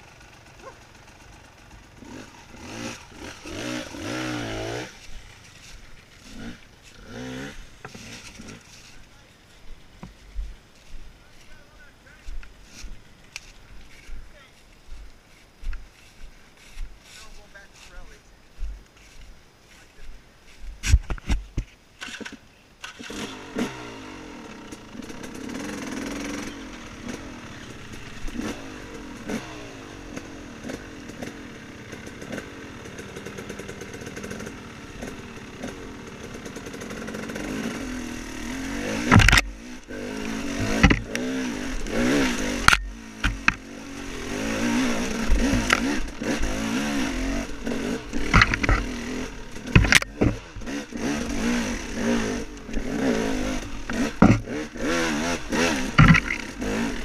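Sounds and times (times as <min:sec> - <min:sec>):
dirt bike engine revving: 0:00.0 - 0:20.1, 0:22.0 - 0:57.0
sharp knocks: 0:53.9 - 0:54.5.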